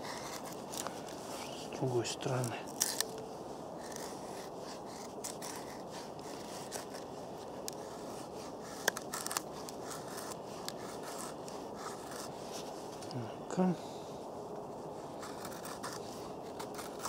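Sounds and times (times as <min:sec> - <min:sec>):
knife shaving wood: 0:00.0 - 0:13.2, 0:14.4 - 0:17.0.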